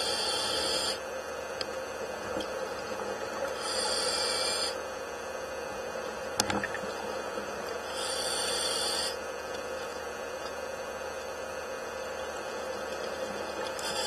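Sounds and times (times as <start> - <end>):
regulator breathing hiss: 0.0 - 1.0, 3.5 - 4.8, 7.8 - 9.2, 13.7 - 14.0
steady hum: 0.0 - 14.0.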